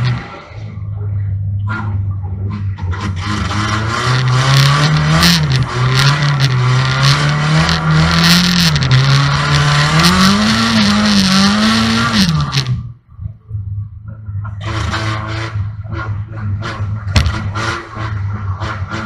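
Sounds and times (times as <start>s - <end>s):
car engine revving hard: 1.8s - 12.8s, 14.6s - 19.0s.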